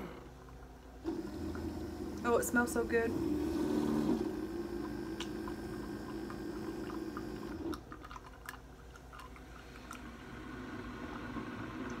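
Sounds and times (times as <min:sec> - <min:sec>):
low steady hum: 0:00.0 - 0:12.0
sipping and swallowing coffee: 0:03.7 - 0:12.0.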